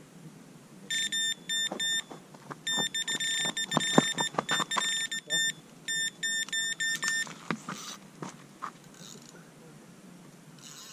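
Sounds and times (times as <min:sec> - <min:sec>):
high-pitched bite alarm beeping: 0:00.9 - 0:07.3.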